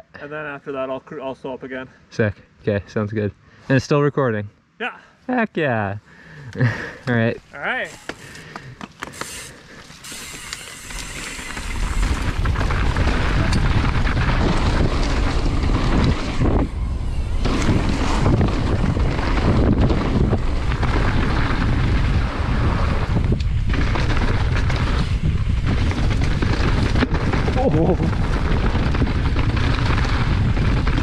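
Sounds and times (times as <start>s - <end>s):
bike tyres rumbling on dirt trail: 6.6s - 31.0s
wind rushing over microphone: 10.9s - 31.0s.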